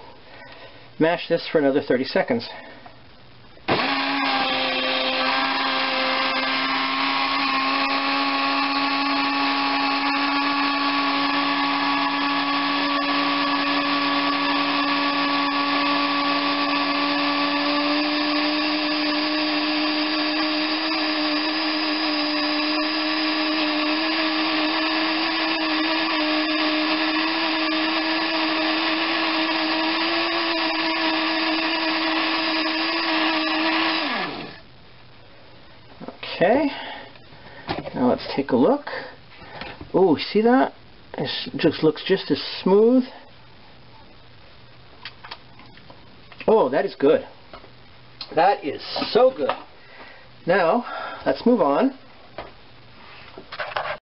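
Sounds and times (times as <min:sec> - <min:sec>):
blender motor running: 0:03.7 - 0:34.6.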